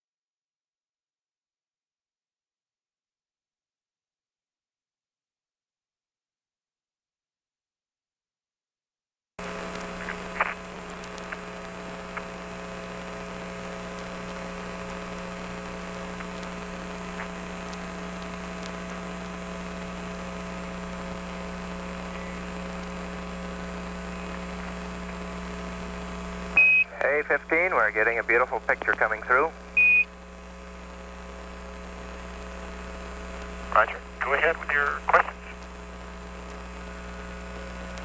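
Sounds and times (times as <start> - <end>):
faint clicks: 9.4 - 12.4, 13.9 - 19.0
steady electrical hum: 9.4 - 38.0.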